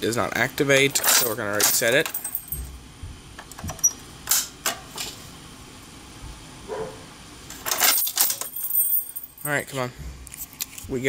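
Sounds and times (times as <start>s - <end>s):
metal rattle: 0.9s - 2.8s, 7.6s - 9.6s
keys jangling: 1.0s - 2.8s, 7.7s - 9.7s.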